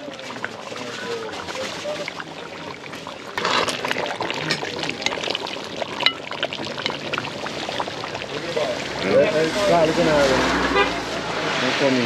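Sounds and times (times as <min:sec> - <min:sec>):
curry bubbling in a pot: 0:00.0 - 0:12.0.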